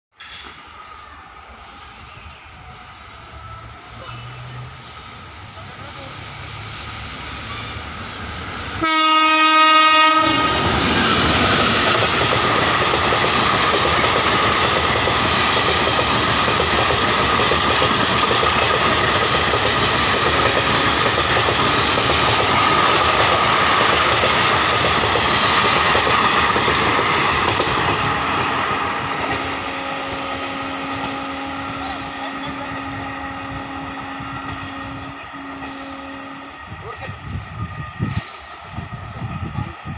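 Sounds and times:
train wheels rushing on rails: 0.1s - 39.9s
train horn blast: 8.8s - 10.9s, 29.5s - 37.0s.

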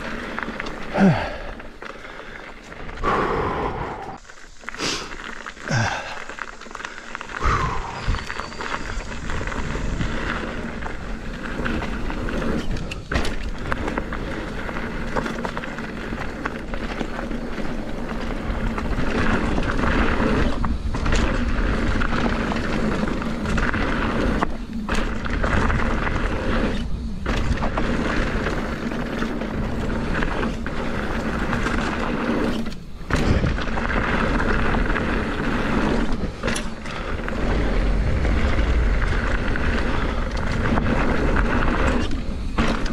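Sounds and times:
bike rattling: 0.0s - 42.9s
bike tyres crunching over gravel: 0.0s - 42.9s
wind rushing over microphone: 7.4s - 14.7s, 18.3s - 42.9s.

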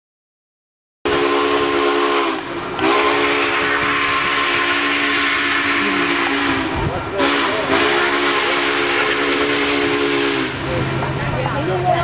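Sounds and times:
steam whistle blowing: 1.1s - 10.7s
steady steam hiss: 1.1s - 12.0s.

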